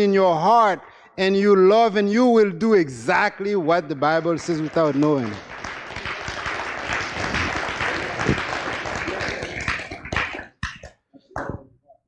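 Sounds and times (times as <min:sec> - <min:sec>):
congregation applauding: 0:04.0 - 0:10.7.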